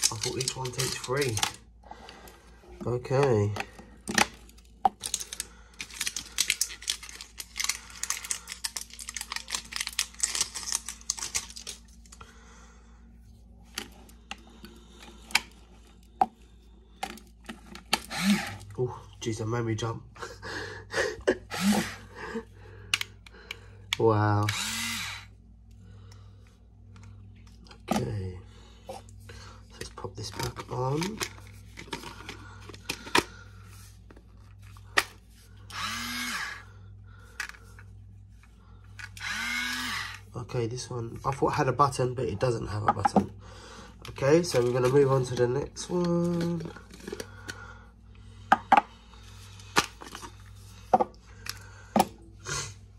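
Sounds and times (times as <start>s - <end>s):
batteries clicking into plastic holder: 0.0s - 1.6s
electric grinder motor whirring: 18.0s - 18.8s, 21.5s - 22.0s, 24.4s - 25.3s, 35.7s - 36.7s, 39.1s - 40.2s.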